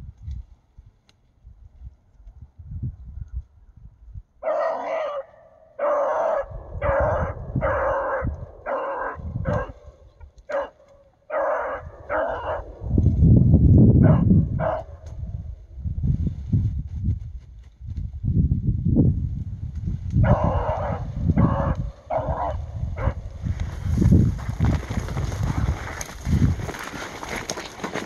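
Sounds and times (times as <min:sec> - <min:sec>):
hound baying: 0:04.4 - 0:13.0, 0:14.0 - 0:15.0, 0:20.2 - 0:23.2
dull rumble over microphone: 0:11.6 - 0:28.0.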